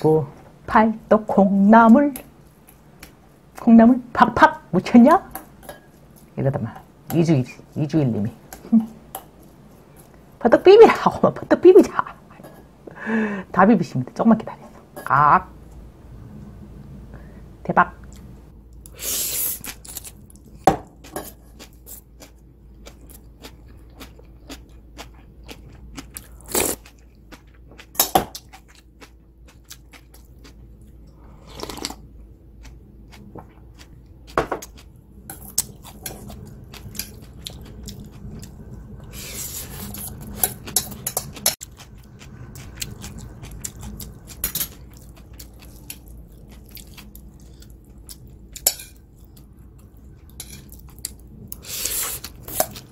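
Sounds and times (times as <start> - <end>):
chewing and crunching: 19.6 - 52.9.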